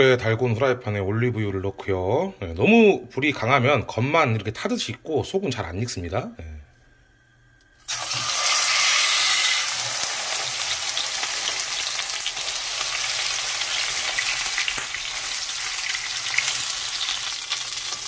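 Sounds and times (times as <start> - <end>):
steak sizzling in a frying pan: 7.9 - 18.0.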